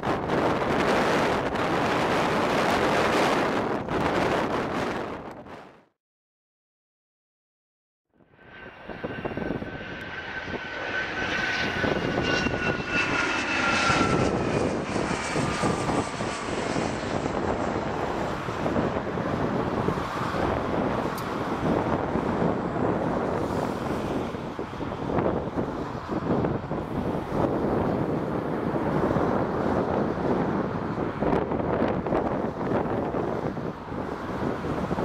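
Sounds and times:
jet passing overhead: 0.0 - 5.7, 8.2 - 35.0
high jet whine: 8.2 - 35.0.

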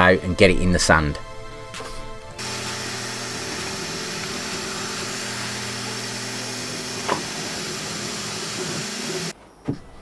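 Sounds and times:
low motor hums: 2.4 - 9.3
three d printer whirring: 2.4 - 9.3.

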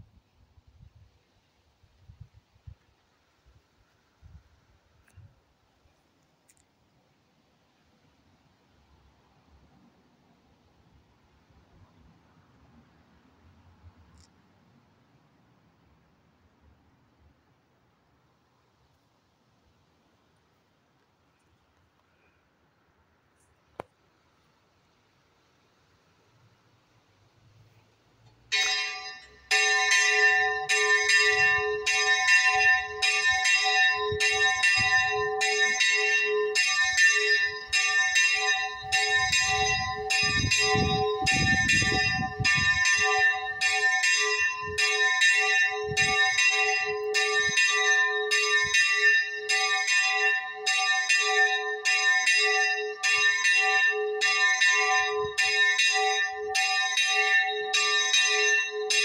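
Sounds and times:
church bell ringing: 28.5 - 59.0.

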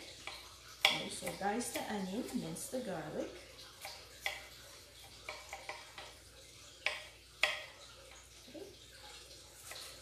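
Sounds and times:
knife tapping on wooden cutting board: 0.2 - 1.9, 6.8 - 7.7.

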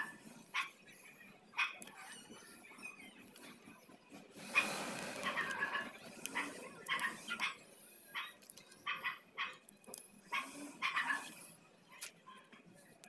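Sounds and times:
dog barking and yipping: 0.0 - 0.8, 1.5 - 2.2, 4.5 - 9.6, 10.3 - 11.4.

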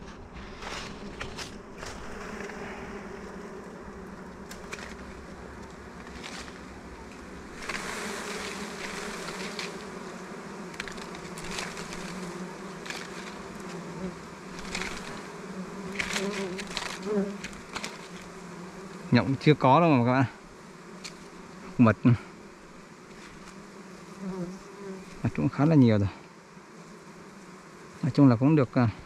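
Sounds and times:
leaves and twigs rustling: 0.0 - 19.1, 20.9 - 21.8, 22.4 - 24.2, 24.9 - 26.1
bees buzzing: 0.0 - 29.0.

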